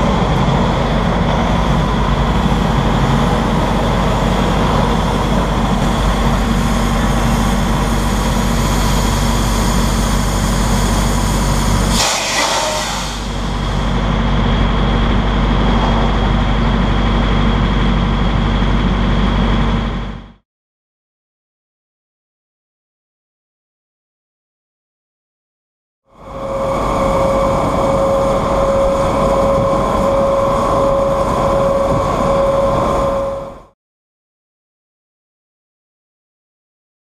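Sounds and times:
diesel truck engine droning: 0:00.0 - 0:20.4, 0:26.1 - 0:33.7
air brake hiss: 0:06.5 - 0:13.7.

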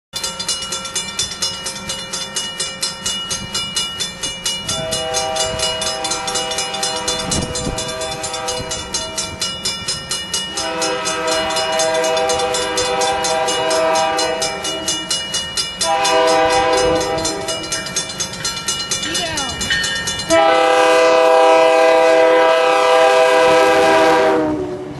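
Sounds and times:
crossing bell clanging: 0:00.1 - 0:23.3
train horn blasts: 0:04.6 - 0:09.4, 0:10.5 - 0:15.2, 0:15.8 - 0:17.8, 0:20.3 - 0:24.9.

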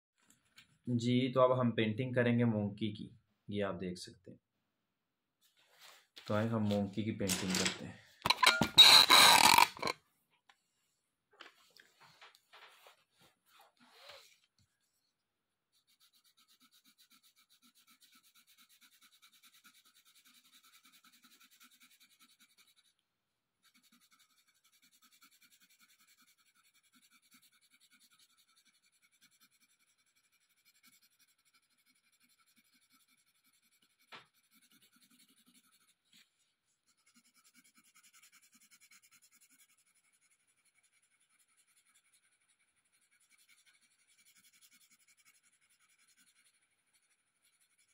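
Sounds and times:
pencil scratching on paper: 0:08.3 - 0:09.9, 0:15.7 - 0:23.0, 0:23.6 - 0:47.9.

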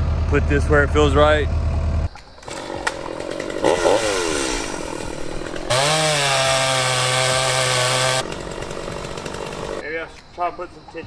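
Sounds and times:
chainsaw cutting wood: 0:02.4 - 0:09.8.

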